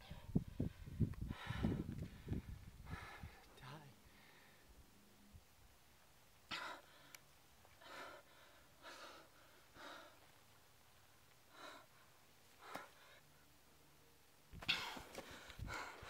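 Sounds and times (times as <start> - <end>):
man gasping for breath: 0.0 - 3.4, 14.6 - 16.0.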